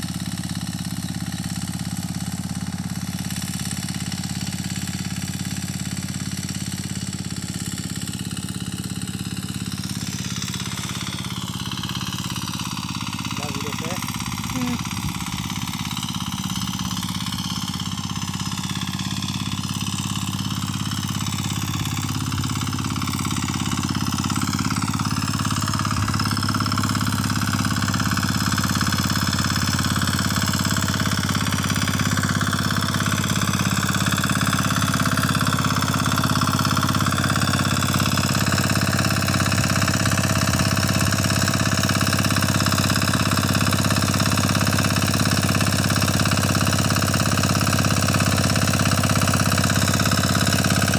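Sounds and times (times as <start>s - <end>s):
diesel power weeder engine: 0.0s - 50.9s
rotavator tilling wet soil: 0.2s - 50.9s.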